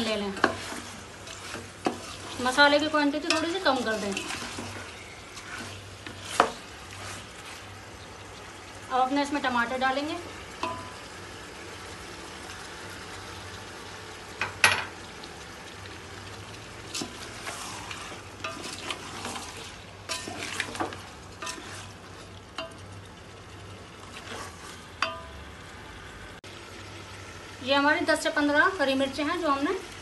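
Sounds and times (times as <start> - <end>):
wooden spatula scraping pot: 0.0 - 7.8, 16.8 - 22.8, 24.0 - 25.0
food sizzling in oil: 0.0 - 30.0.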